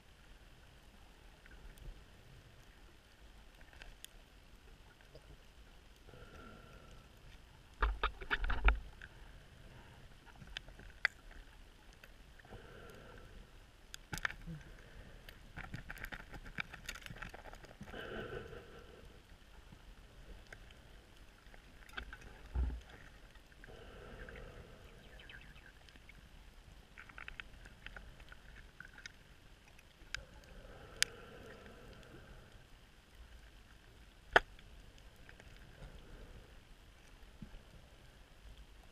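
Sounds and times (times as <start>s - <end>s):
scuba diver breathing through regulator: 17.9s - 19.1s.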